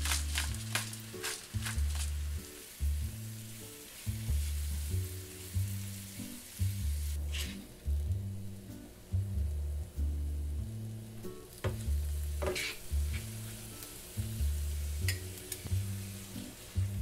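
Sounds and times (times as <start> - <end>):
vegetables sizzling in frying pan: 0.0 - 9.2, 10.6 - 17.0
spoon scraping pan: 12.4 - 13.3.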